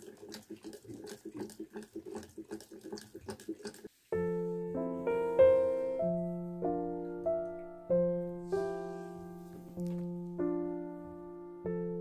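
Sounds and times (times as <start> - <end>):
gentle piano melody: 4.1 - 12.0.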